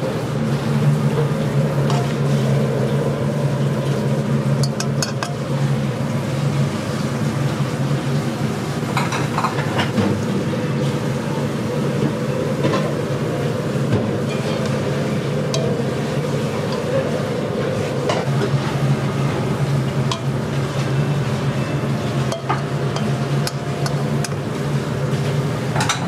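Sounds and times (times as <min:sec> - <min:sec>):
low kitchen hum: 0:00.0 - 0:26.0
metal tongs clinking on wok and bowls: 0:04.6 - 0:05.5, 0:15.5 - 0:17.2, 0:20.1 - 0:20.4, 0:21.7 - 0:24.5.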